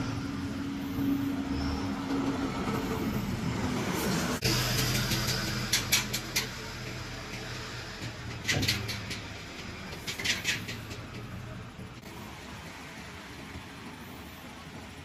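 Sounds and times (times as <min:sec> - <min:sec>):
diesel engine running low: 0:00.0 - 0:15.0
sharp mechanical clicks and clunks: 0:04.4 - 0:12.0.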